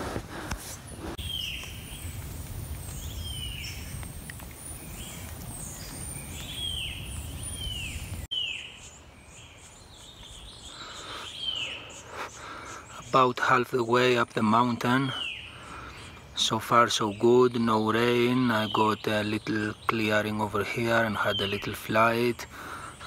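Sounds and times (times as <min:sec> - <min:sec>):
bird falling chirp: 0:01.2 - 0:08.7
faint high-pitched bird calls: 0:01.2 - 0:23.0.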